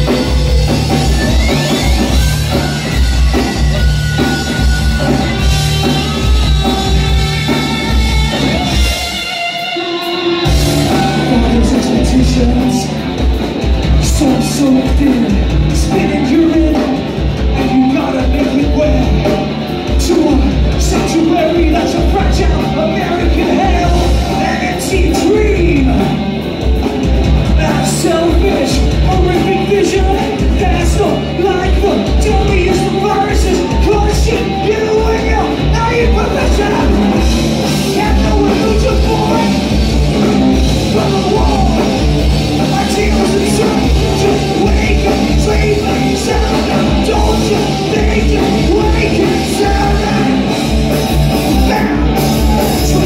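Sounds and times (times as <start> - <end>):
live rock band playing: 0.0 - 53.0
person singing: 10.4 - 13.1, 27.5 - 53.0.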